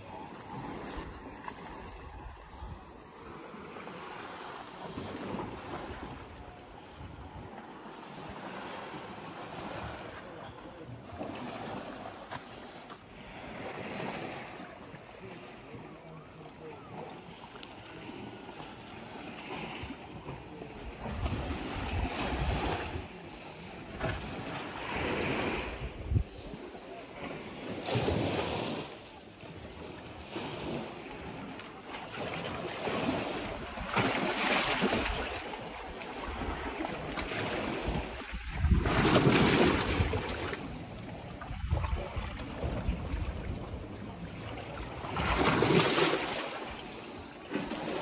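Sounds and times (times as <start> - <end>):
waves washing onto shore: 0.0 - 48.0
wind buffeting microphone: 25.3 - 26.5, 34.8 - 45.8.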